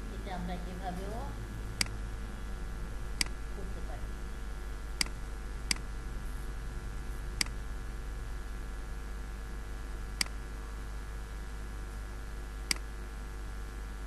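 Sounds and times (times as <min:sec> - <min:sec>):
steady low hum: 0:00.0 - 0:14.0
computer mouse clicks: 0:07.4 - 0:07.6, 0:12.7 - 0:12.9.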